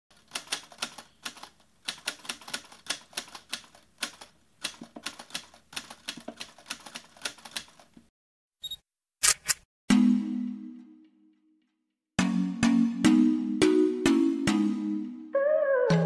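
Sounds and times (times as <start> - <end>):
typewriter typing: 0.1 - 8.0.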